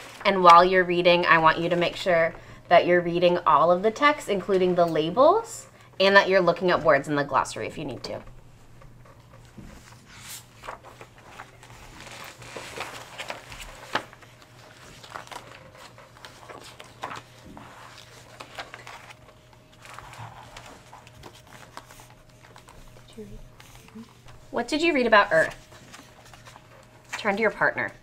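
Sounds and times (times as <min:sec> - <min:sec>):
paper pages rustling: 0:00.0 - 0:00.6, 0:08.8 - 0:28.0
faint steady hum: 0:00.0 - 0:28.0.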